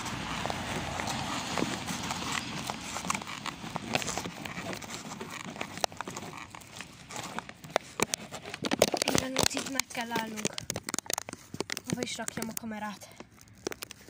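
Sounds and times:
footsteps on snow: 0:00.0 - 0:07.6.

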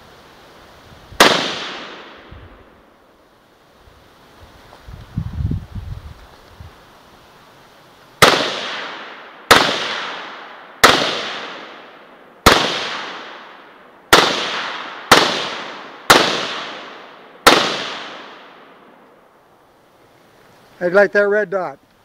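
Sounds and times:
rifle shots with long echo: 0:01.2 - 0:03.0, 0:08.2 - 0:19.0.

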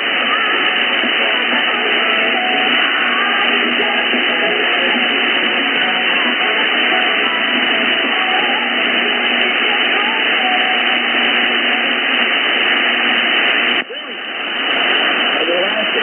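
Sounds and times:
radio static hiss: 0:00.0 - 0:16.0
weak radio station: 0:00.0 - 0:16.0.

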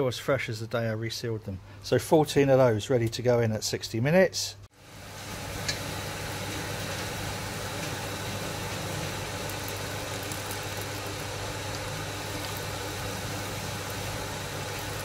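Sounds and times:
water spraying onto grain: 0:04.8 - 0:15.0.

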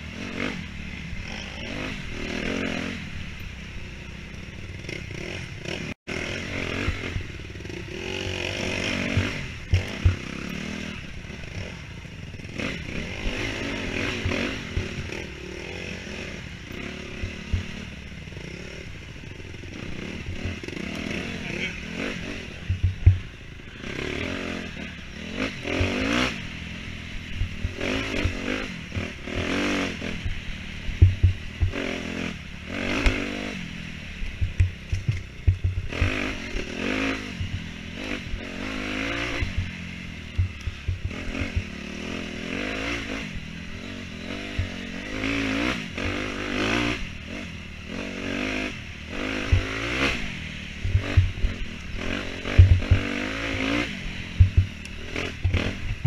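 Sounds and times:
dirt bike engine revving: 0:00.0 - 0:56.0
thumps and clattering: 0:34.4 - 0:36.1.

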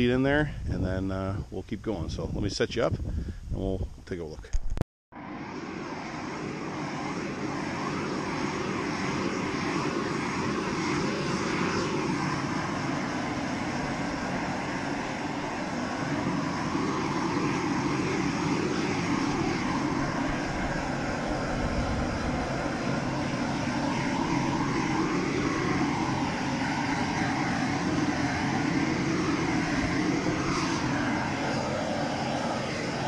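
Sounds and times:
heat gun flame rushing: 0:04.6 - 0:33.0.

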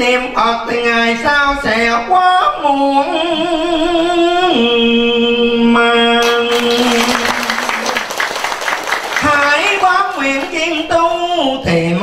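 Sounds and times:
audience applause: 0:06.2 - 0:10.6.

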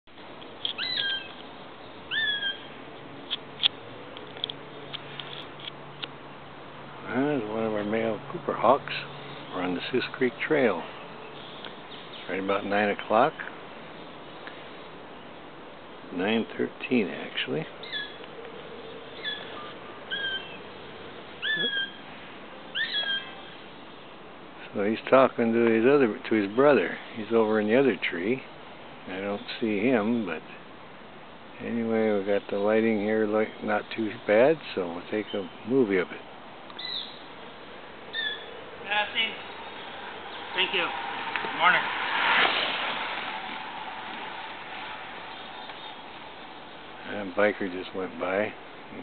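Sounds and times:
hawk whistled calls: 0:00.8 - 0:01.4, 0:02.1 - 0:02.7, 0:17.8 - 0:18.2, 0:19.1 - 0:20.7, 0:21.4 - 0:22.0, 0:22.7 - 0:23.6, 0:36.8 - 0:37.2, 0:38.1 - 0:38.5.

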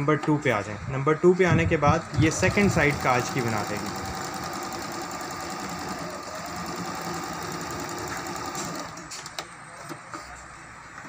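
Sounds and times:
sewing machine stitching: 0:02.1 - 0:09.2.

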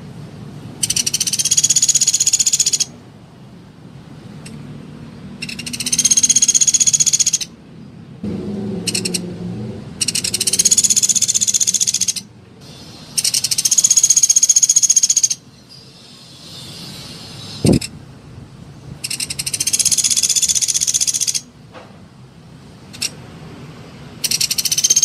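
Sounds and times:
woodpecker rattling trills: 0:00.8 - 0:02.9, 0:05.4 - 0:07.5, 0:08.9 - 0:09.3, 0:10.0 - 0:12.3, 0:13.2 - 0:15.4, 0:19.0 - 0:21.5, 0:24.2 - 0:25.0.

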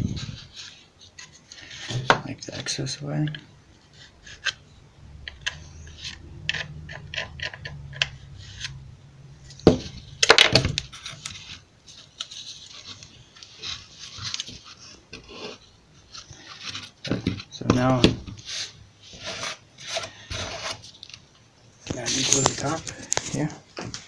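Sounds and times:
low steady hum: 0:00.0 - 0:24.0
wooden pieces knocking and clicking: 0:05.3 - 0:08.7, 0:09.6 - 0:11.4
wood scraping and rubbing: 0:05.3 - 0:20.9, 0:21.9 - 0:23.5.

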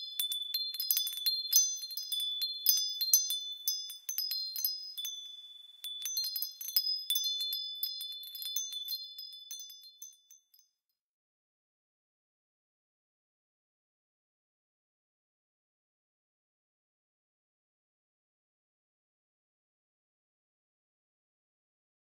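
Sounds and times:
wind chimes tinkling: 0:00.0 - 0:10.7.

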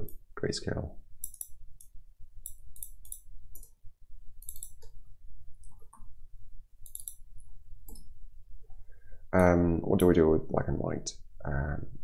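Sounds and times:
low steady hum: 0:00.0 - 0:12.0
keyboard keys clicking: 0:04.4 - 0:05.0, 0:06.9 - 0:07.2.

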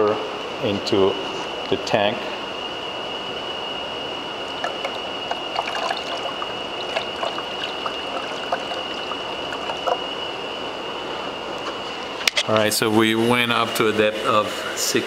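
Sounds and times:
steady high-pitched whine: 0:00.0 - 0:15.0
water pouring and splashing: 0:04.6 - 0:10.0.

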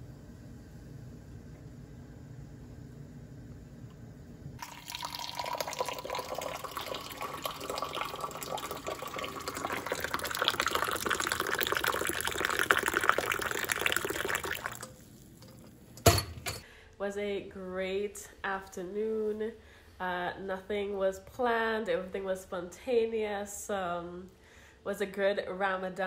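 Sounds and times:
tea pouring into a glass: 0:04.6 - 0:15.6.

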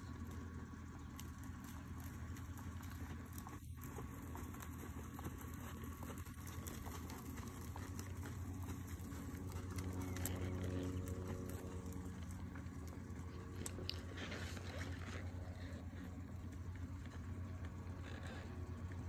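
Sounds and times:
low hum: 0:00.0 - 0:19.0
steady low rumble: 0:00.0 - 0:19.0
horse hoofbeats on sandy dirt: 0:00.1 - 0:19.0.

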